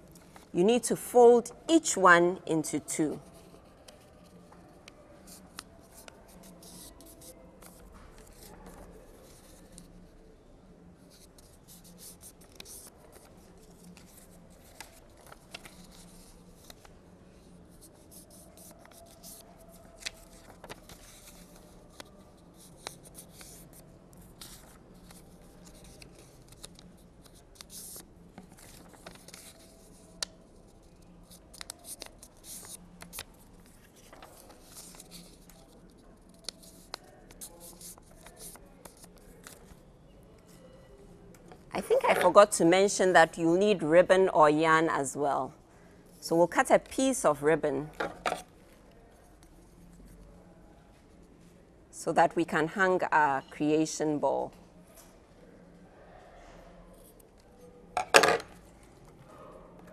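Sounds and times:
paper folding clicks and rustles: 11.2s - 17.0s, 17.8s - 39.8s.

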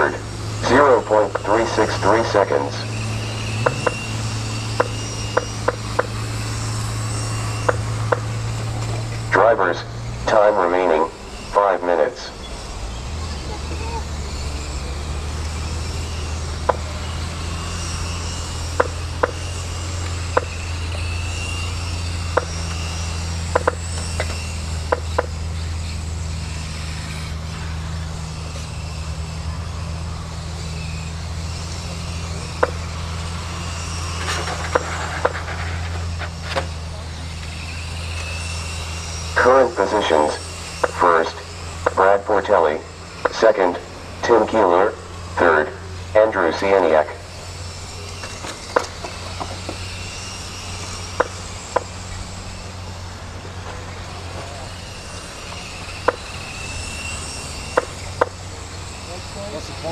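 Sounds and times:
high electric motor whine: 0.0s - 59.9s
steady low hum: 0.0s - 59.9s
sharp clicks: 7.6s - 9.2s, 18.7s - 19.4s, 23.5s - 25.3s, 40.6s - 42.0s.

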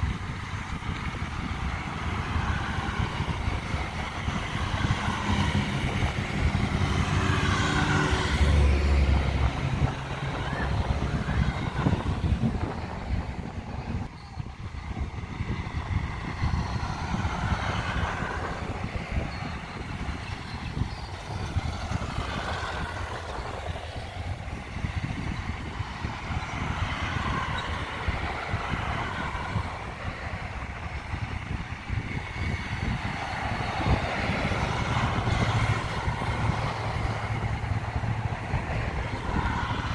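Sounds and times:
cars and motorbikes passing: 0.0s - 39.9s
deep engine hum: 0.2s - 25.3s.

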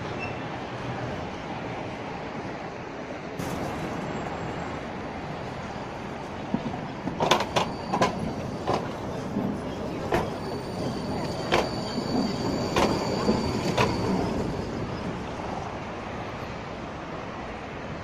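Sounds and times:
high wheel squeal: 0.0s - 0.6s, 7.3s - 15.7s
tram rumble: 0.0s - 18.0s
tram wheels clacking over track joint: 6.4s - 15.2s.

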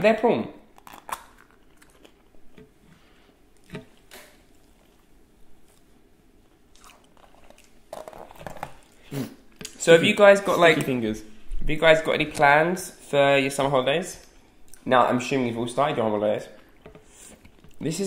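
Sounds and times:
people chewing: 1.1s - 3.8s, 6.6s - 9.7s
faint clicks and smacks: 16.6s - 17.8s.

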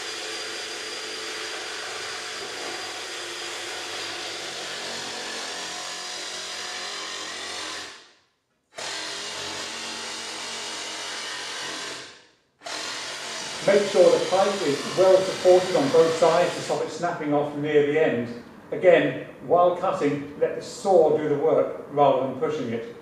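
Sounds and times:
jigsaw cutting plastic pipe: 0.0s - 8.1s, 8.7s - 16.9s.

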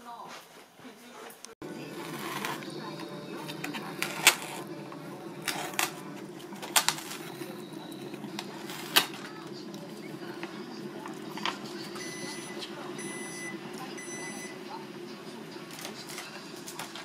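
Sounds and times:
steady low hum: 1.6s - 17.0s
paper cup and foil crackling: 1.7s - 12.0s.

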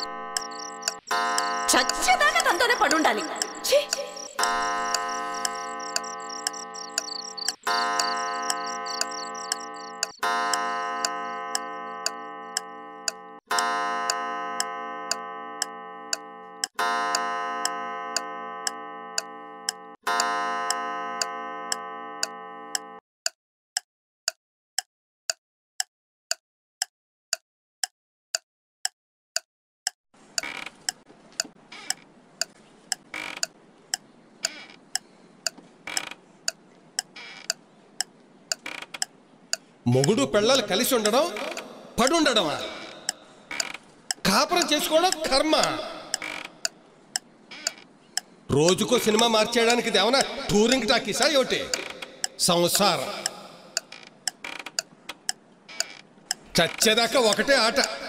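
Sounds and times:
clock gong striking: 0.0s - 7.0s, 7.6s - 18.8s
clock ticking: 0.0s - 27.4s, 28.3s - 58.0s.

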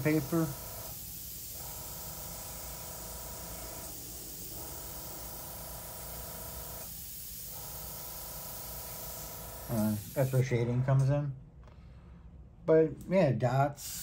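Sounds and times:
airbrush spraying hiss: 0.0s - 10.4s, 13.8s - 14.0s.

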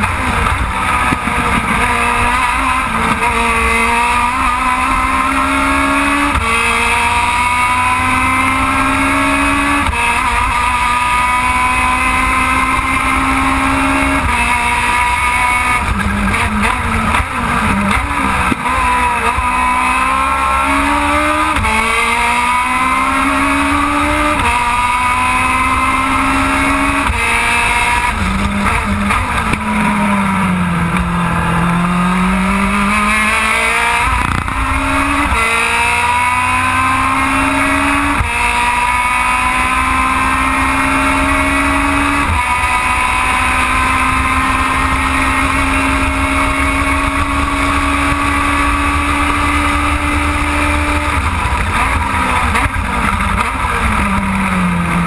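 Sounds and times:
racing car engine revving: 0.0s - 55.0s.

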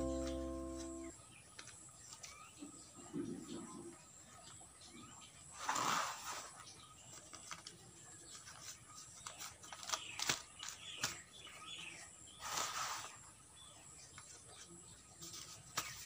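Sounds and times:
hands scraping dry soil: 12.4s - 13.2s
soil rustling in plastic bag: 12.4s - 13.2s.

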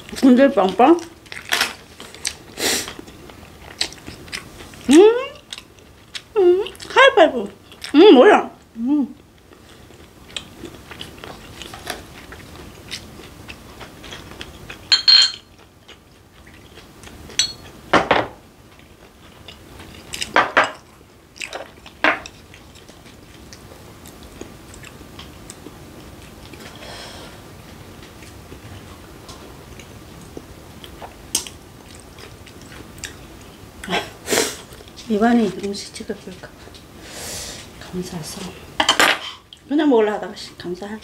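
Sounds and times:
close chewing: 1.0s - 7.0s, 9.2s - 14.9s, 21.3s - 26.8s, 27.6s - 34.0s
dishes clattering: 14.9s - 15.5s, 38.8s - 39.4s.

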